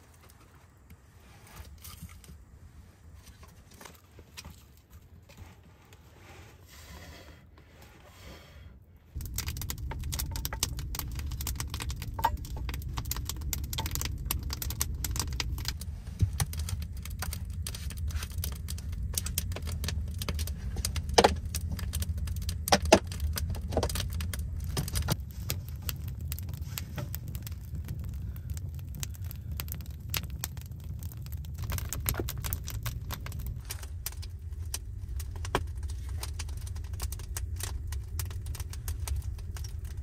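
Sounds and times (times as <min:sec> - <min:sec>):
low rumble: 0:09.0 - 0:40.0
wood fire crackling: 0:09.0 - 0:40.0.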